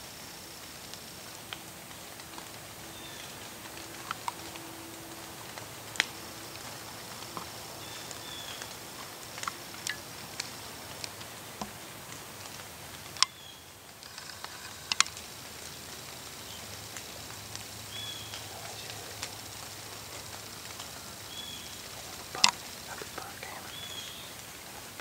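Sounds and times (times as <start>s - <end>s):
light ticks and patter: 0.0s - 25.0s
sharp clicks: 14.0s - 15.3s, 21.8s - 23.4s.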